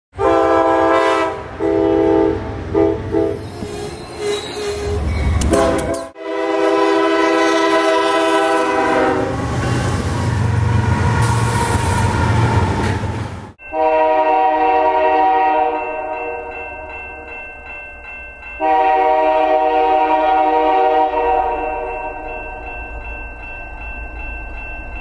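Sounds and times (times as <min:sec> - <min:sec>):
locomotive air horn blasts: 0:00.2 - 0:03.5, 0:05.4 - 0:09.9, 0:13.7 - 0:16.4, 0:18.6 - 0:21.6
deep rumble of passing locomotive: 0:00.2 - 0:17.4.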